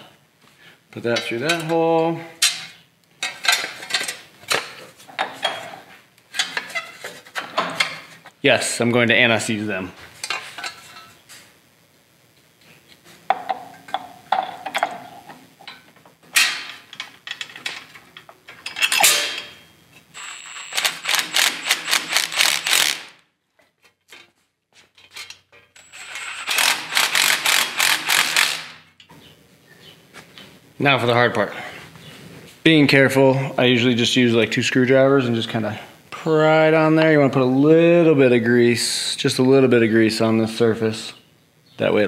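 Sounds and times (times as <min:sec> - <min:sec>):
metal parts clinking: 0:16.4 - 0:19.6
impact wrench hammering: 0:20.2 - 0:23.2, 0:25.8 - 0:28.8.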